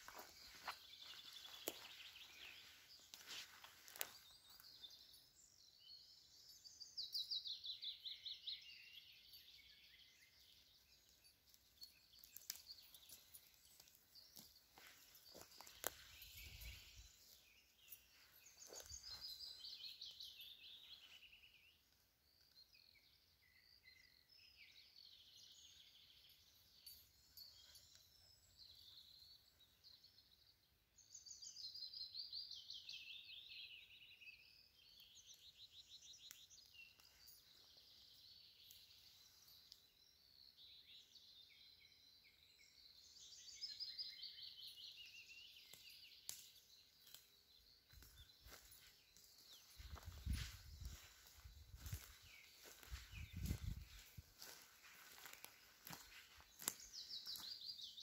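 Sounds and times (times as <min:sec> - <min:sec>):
footsteps through grass: 0:00.0 - 0:05.0, 0:12.2 - 0:21.4, 0:46.7 - 0:58.0
faint songbird trills: 0:00.0 - 0:58.0.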